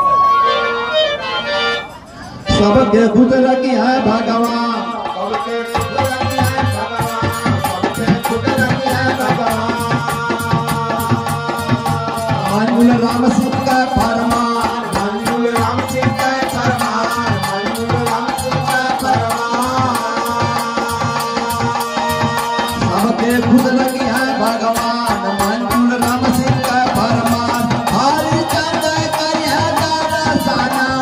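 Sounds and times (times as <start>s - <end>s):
harmonium melody: 0.0s - 31.0s
hand drum rhythm: 4.0s - 31.0s.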